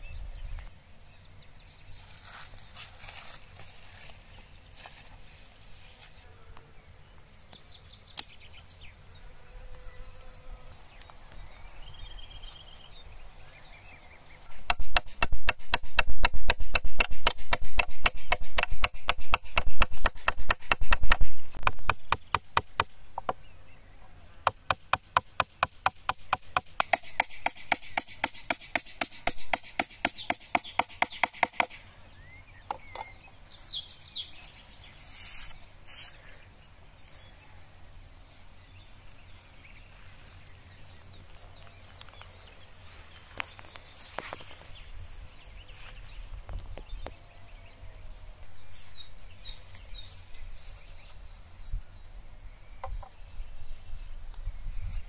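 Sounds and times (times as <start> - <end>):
hammer driving nails into wood: 14.5 - 23.4, 24.5 - 31.8.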